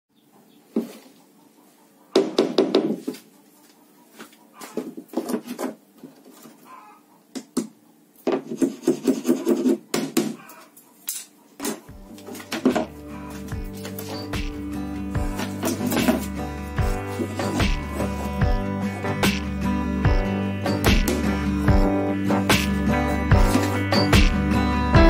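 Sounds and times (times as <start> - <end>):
pencil and ruler scraping on plywood: 8.3 - 9.9, 15.3 - 19.3
music: 11.9 - 25.0.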